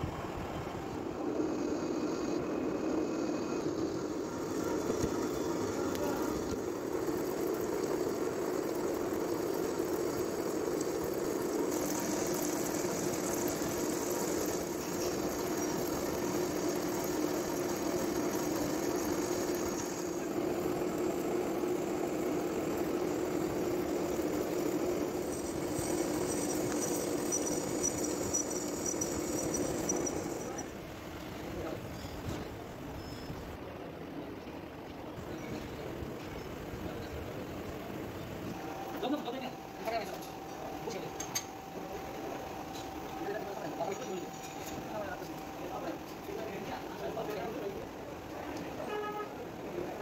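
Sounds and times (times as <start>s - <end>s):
metal lathe humming: 1.0s - 30.8s, 38.5s - 50.0s
thin high cutting tone: 9.5s - 20.3s, 23.0s - 30.7s, 38.5s - 47.8s.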